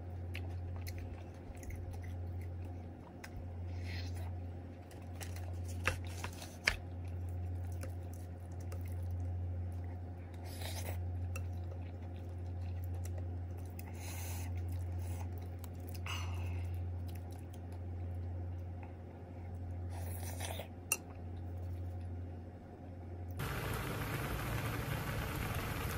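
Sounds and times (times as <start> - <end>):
steady low hum: 0.0 - 25.9
person chewing: 0.2 - 18.7.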